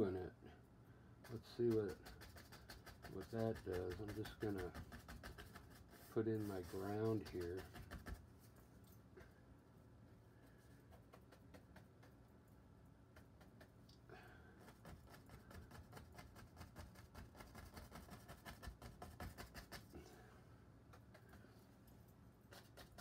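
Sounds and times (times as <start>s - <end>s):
low steady hum: 0.0s - 23.0s
brush dabbing paint onto canvas: 1.2s - 9.4s, 10.2s - 13.9s, 14.5s - 20.1s, 22.4s - 23.0s.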